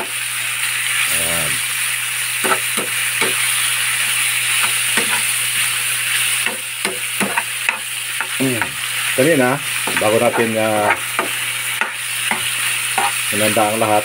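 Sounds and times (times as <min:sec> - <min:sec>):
fish sizzling in hot oil: 0:00.0 - 0:14.0
metal spoon scraping pan: 0:09.8 - 0:13.2.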